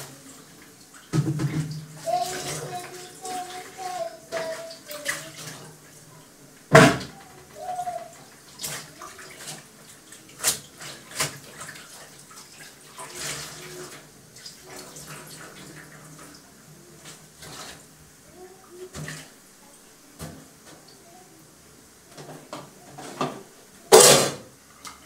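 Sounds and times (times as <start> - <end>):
water running: 0.0 - 25.0
pots and utensils clattering: 22.1 - 24.5.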